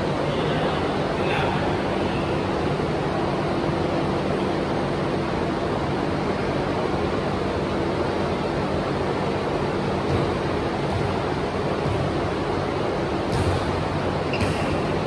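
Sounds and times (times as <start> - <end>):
fan whooshing with low hum: 0.0 - 15.0.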